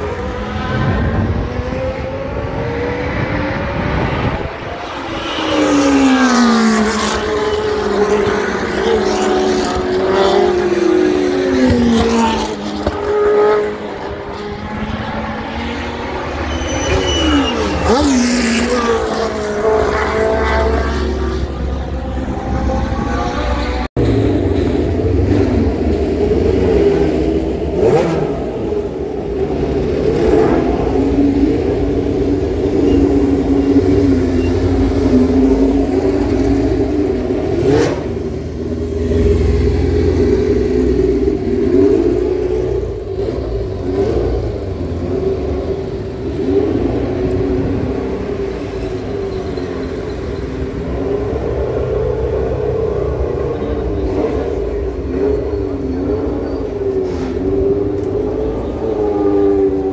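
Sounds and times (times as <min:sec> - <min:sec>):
racing car engines revving: 0:00.0 - 0:59.9.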